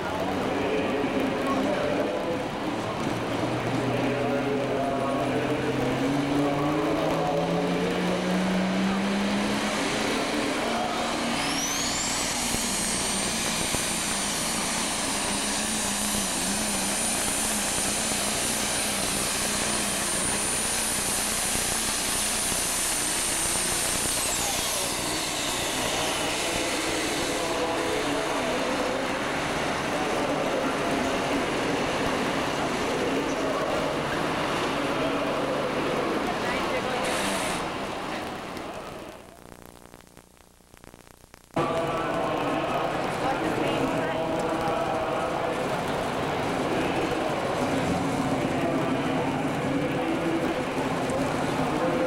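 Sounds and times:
diesel engine revving under load: 0.0s - 38.6s
high turbocharger whine: 0.0s - 39.6s, 41.5s - 52.0s.

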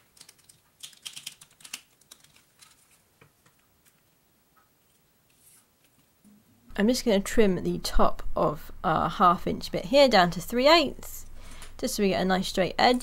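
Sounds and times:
plastic sheet clicks and crackles: 0.0s - 4.1s.

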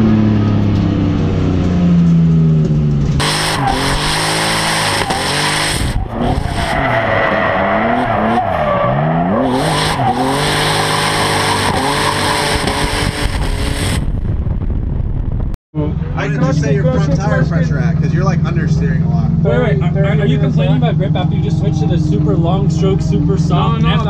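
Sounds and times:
tires screeching: 0.0s - 14.2s
car engine revving: 0.0s - 14.3s.

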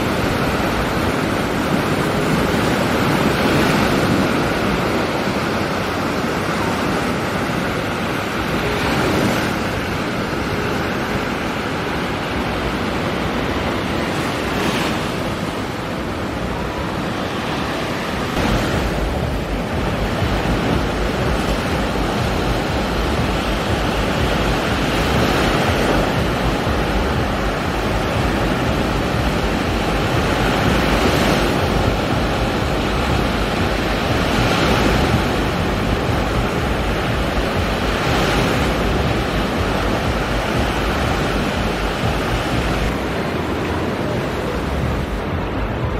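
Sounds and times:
waves crashing on beach: 0.0s - 45.9s
wind buffeting microphone: 0.0s - 45.9s
low rumble: 18.4s - 44.0s.

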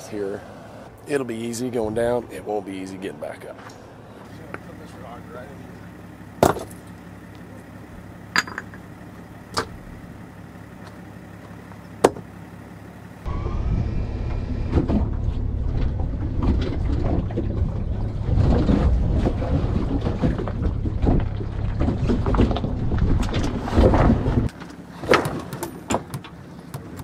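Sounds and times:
tyres crunching over gravel: 1.5s - 13.2s, 15.4s - 27.0s
stones crackling under wheels: 3.5s - 9.9s, 15.4s - 27.0s.

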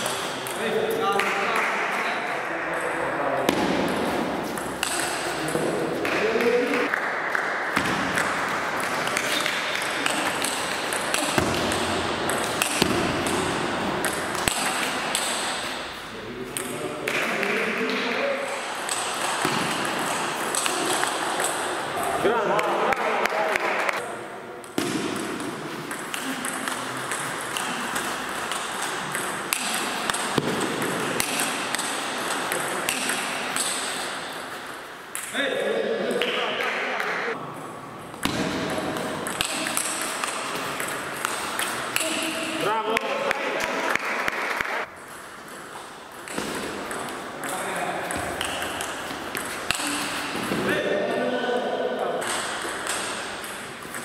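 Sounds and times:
table tennis ball hits: 3.5s - 16.0s, 16.6s - 22.2s, 24.6s - 35.4s, 38.1s - 44.7s, 45.4s - 50.7s, 52.2s - 54.0s.

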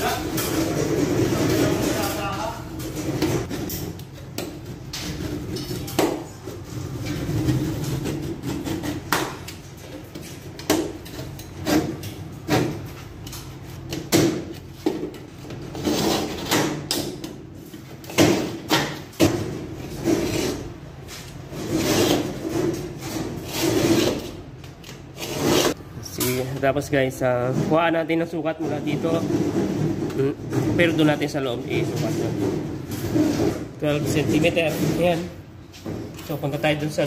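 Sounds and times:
utility knife scraping board: 5.0s - 9.3s, 15.7s - 16.8s, 19.9s - 25.8s.

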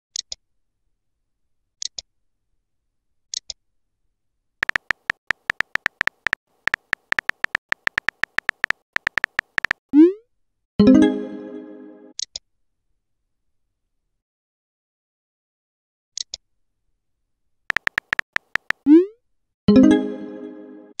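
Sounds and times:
electronic typing ticks: 4.6s - 9.8s, 17.7s - 19.0s
short double clicks: 4.6s - 9.8s, 17.7s - 19.0s.

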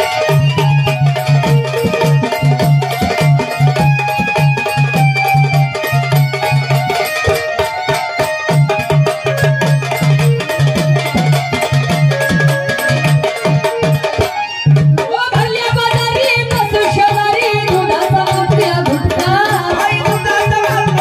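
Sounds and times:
sustained melody line: 0.0s - 15.2s
hand drum beats: 0.0s - 21.0s.

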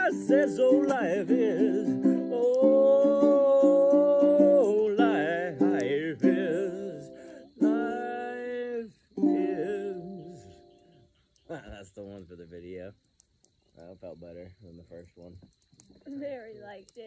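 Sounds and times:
man singing long note: 0.0s - 10.6s
strummed acoustic chords: 0.0s - 10.7s.

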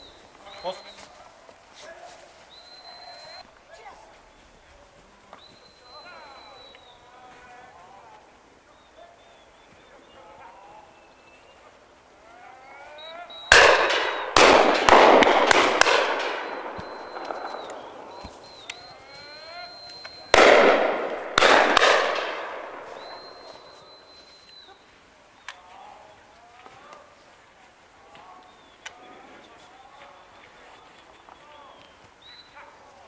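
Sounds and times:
shotgun shots with rolling echo: 13.5s - 18.7s, 20.3s - 23.8s.

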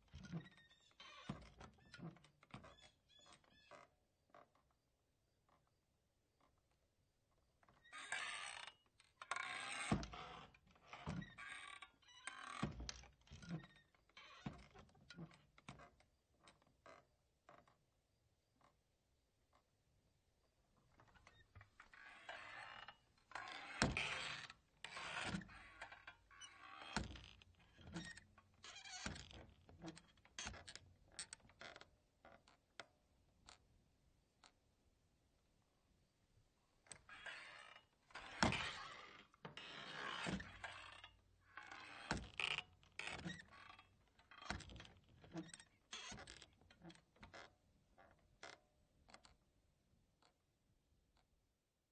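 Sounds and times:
saloon doors creaking and knocking: 21.0s - 31.8s.

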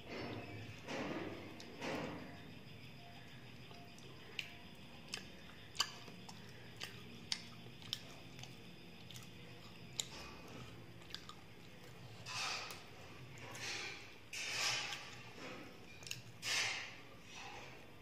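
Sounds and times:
person chewing: 3.6s - 14.1s, 14.8s - 16.4s
wet mouth clicks: 5.1s - 10.2s.

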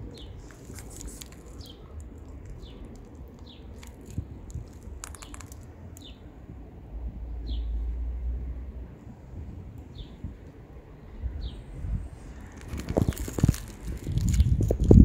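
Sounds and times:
bird chirping: 0.0s - 4.0s
kittens crunching food: 0.0s - 6.1s, 12.4s - 15.0s.

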